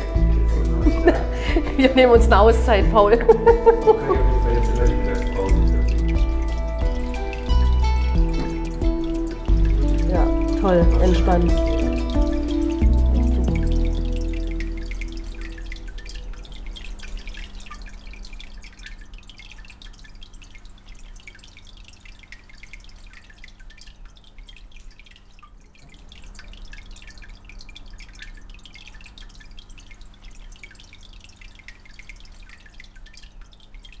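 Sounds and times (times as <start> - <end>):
steady low hum: 0.0 - 19.7
aquarium water dripping: 0.0 - 34.0.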